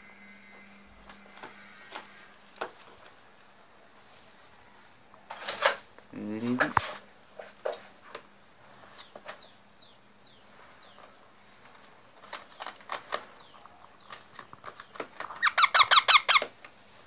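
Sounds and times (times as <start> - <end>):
parakeets chirping: 13.3 - 16.5
loud squeaky bird calls: 15.3 - 16.5.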